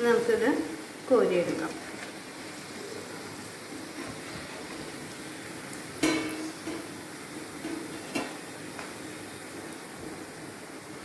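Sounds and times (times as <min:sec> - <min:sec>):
food sizzling in hot oil: 0:00.0 - 0:11.0
metal spoon clanking on pan: 0:06.0 - 0:06.9, 0:07.6 - 0:08.4.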